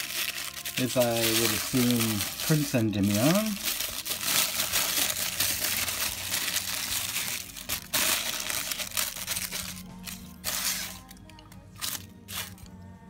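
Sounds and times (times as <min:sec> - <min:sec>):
tissue paper crinkling: 0:00.0 - 0:11.2.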